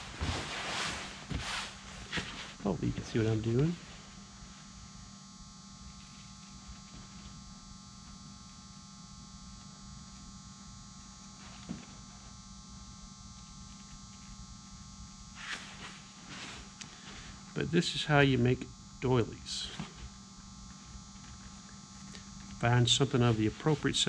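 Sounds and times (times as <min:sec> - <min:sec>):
electrical mains hum: 0:00.0 - 0:24.0
shears cutting fabric: 0:09.5 - 0:12.4, 0:13.3 - 0:17.2, 0:19.6 - 0:24.0.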